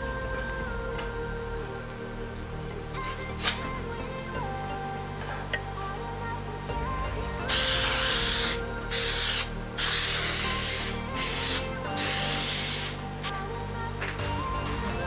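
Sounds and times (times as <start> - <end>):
background music: 0.0 - 15.0
hissing spray: 7.5 - 13.3.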